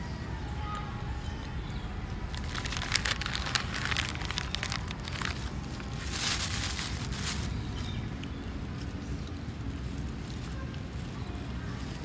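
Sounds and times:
paper wrapper crinkling: 2.3 - 11.0
plastic bag rustling: 2.3 - 12.0.

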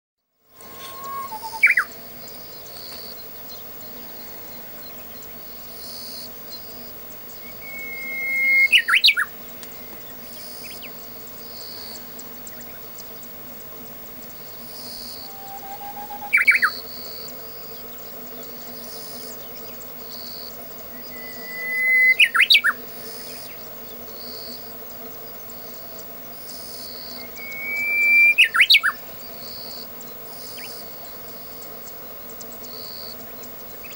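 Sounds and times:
bird singing whistled song: 0.6 - 5.0, 7.4 - 10.9, 14.8 - 17.0, 20.9 - 23.6, 27.2 - 29.0.

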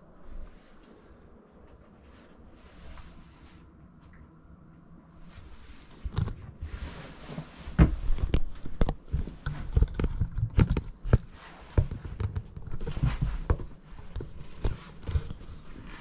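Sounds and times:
clicks and knocks indoors: 7.8 - 15.9.

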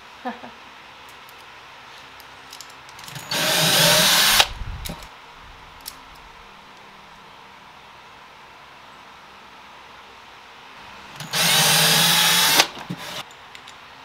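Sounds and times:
power drill driving screw: 3.1 - 4.5, 11.2 - 13.2.

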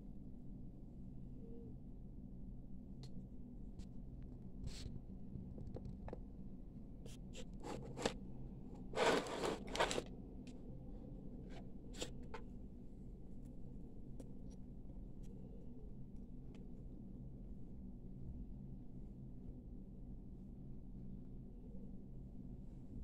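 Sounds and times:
steady low hum: 0.0 - 23.0
scraping rustle: 7.5 - 8.2, 8.8 - 10.1.

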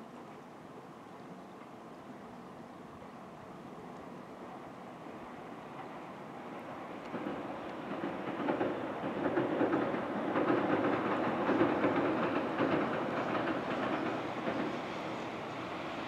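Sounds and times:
train wheels clattering over rail joints: 7.1 - 15.8.

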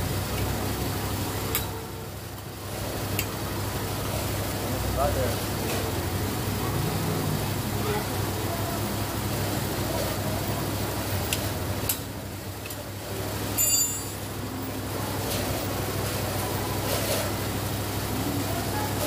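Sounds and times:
metallic clink: 13.5 - 14.3.

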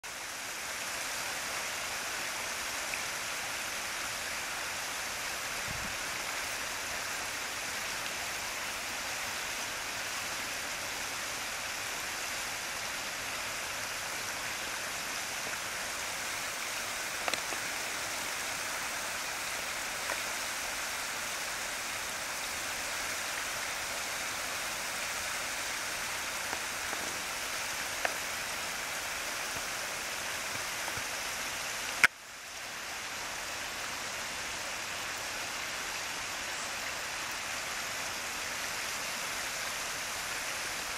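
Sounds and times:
creek water rushing: 0.0 - 40.9
faint clicks: 17.2 - 17.8, 27.9 - 28.3.

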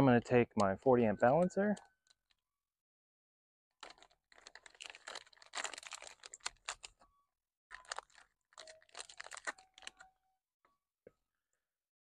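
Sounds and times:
plastic bag crinkling: 3.8 - 7.0, 7.7 - 10.1.

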